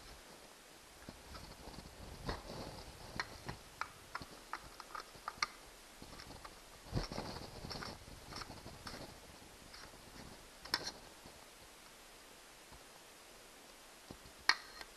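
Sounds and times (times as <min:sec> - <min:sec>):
plastic handling and scraping: 0:01.0 - 0:11.4.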